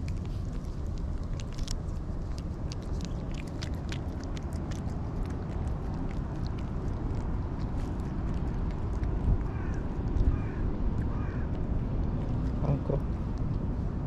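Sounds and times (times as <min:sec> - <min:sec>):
cat licking with wet clicks: 0:00.0 - 0:14.0
low rumble: 0:00.0 - 0:14.0.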